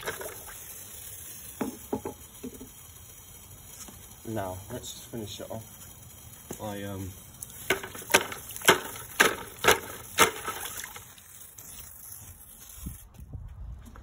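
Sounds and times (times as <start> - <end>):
water splashing: 0.0 - 1.1, 7.6 - 11.6
water sloshing: 7.7 - 11.3.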